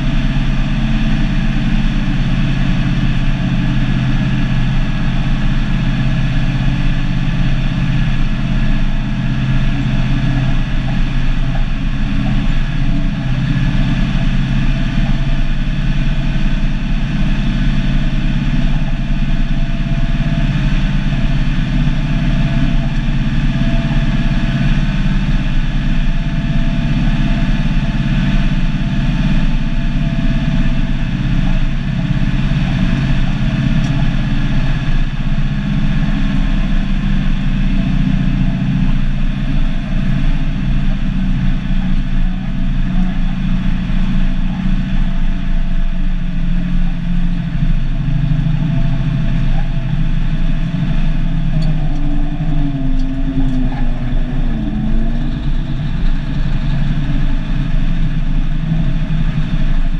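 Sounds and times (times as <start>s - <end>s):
diesel truck engine running: 0.0s - 59.9s.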